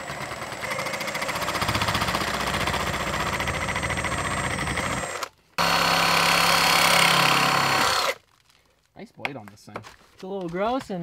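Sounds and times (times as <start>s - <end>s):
reciprocating saw cutting plastic pipe: 0.0s - 8.2s.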